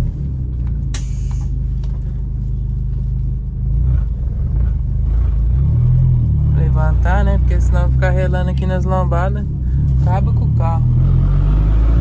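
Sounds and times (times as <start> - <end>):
low rumble inside vehicle cabin: 0.0 - 11.1
sharp click: 0.9 - 1.5
short hiss of air: 0.9 - 1.6.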